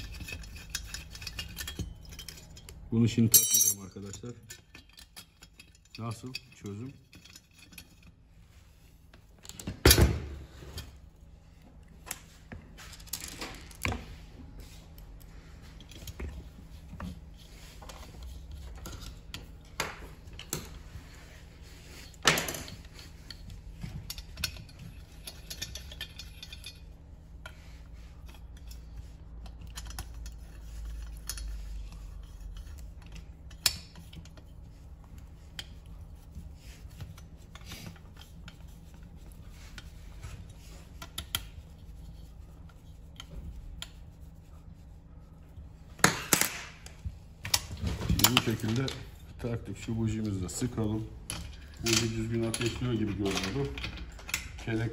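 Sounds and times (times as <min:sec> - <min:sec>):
metal tools clinking and knocking: 0:00.0 - 0:08.1, 0:22.2 - 0:27.0, 0:50.2 - 0:54.9.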